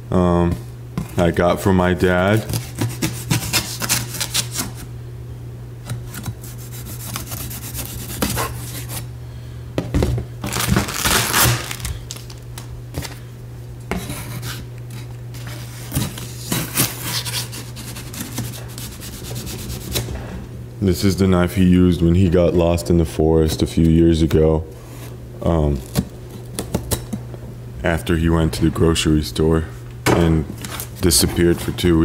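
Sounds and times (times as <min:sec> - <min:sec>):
knife scraping through tape: 0:02.5 - 0:04.9, 0:06.2 - 0:09.1, 0:16.0 - 0:20.0.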